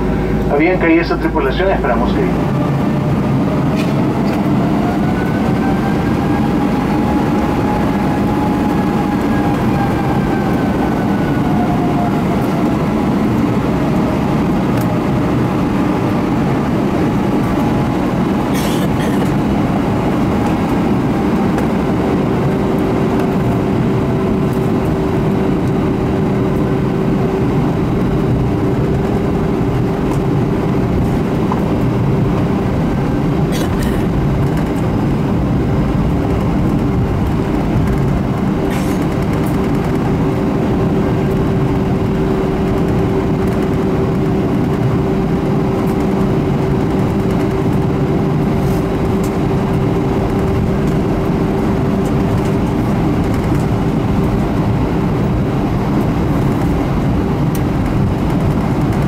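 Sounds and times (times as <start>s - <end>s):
steady hum: 0.0s - 11.5s
jet engines rumbling: 0.0s - 59.0s.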